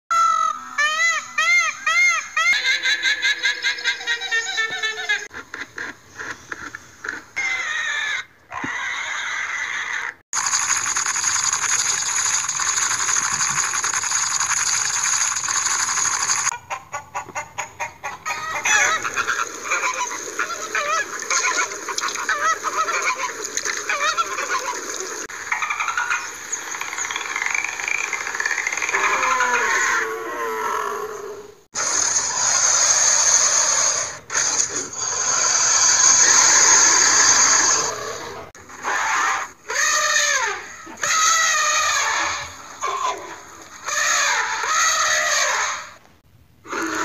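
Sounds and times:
pitched animal calls: 0.1s - 47.0s
steady hiss: 10.4s - 16.5s.

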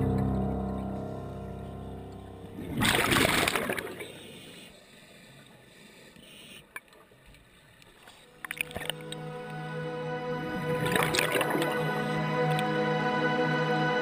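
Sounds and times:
background music: 0.0s - 2.8s, 8.3s - 14.0s.

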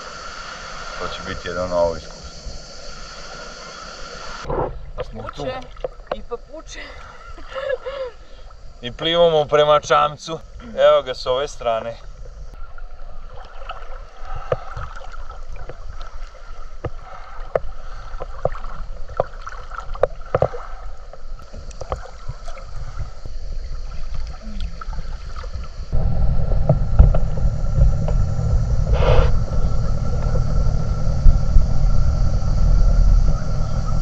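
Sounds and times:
motorboat low rumble: 11.8s - 34.0s
water splashing from swimming: 12.6s - 25.9s.

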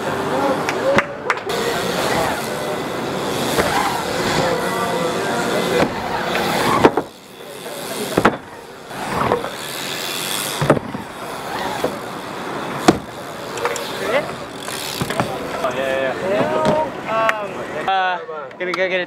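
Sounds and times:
bike tyres rolling on wood: 0.8s - 16.9s
wheels knocking on wood: 14.6s - 15.6s.

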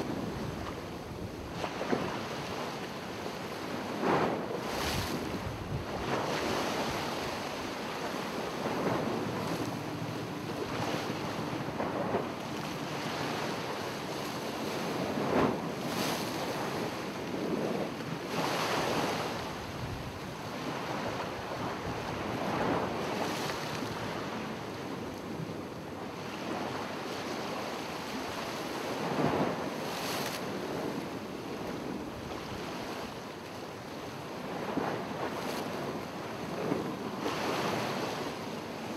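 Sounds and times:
ocean waves washing onto shore: 0.0s - 38.9s.

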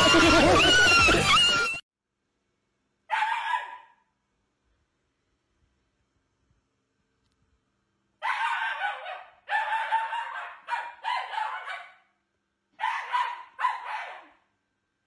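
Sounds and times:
dog screaming cries: 0.0s - 1.8s, 3.1s - 3.9s, 8.2s - 12.0s, 12.8s - 14.4s.

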